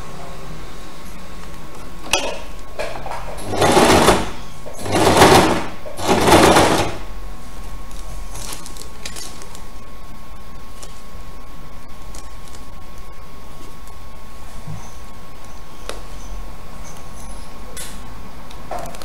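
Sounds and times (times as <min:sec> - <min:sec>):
sewing machine stitching: 0:02.9 - 0:07.1.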